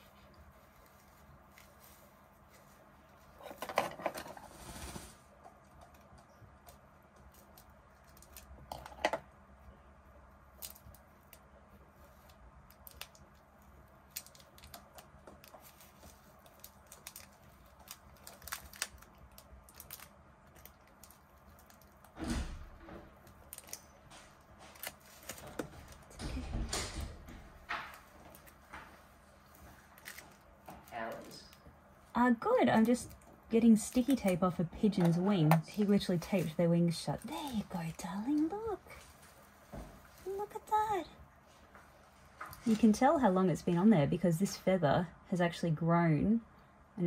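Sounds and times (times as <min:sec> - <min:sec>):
tape peeling crackles: 0:04.4 - 0:08.8, 0:10.4 - 0:22.2, 0:23.2 - 0:26.1, 0:27.8 - 0:31.0.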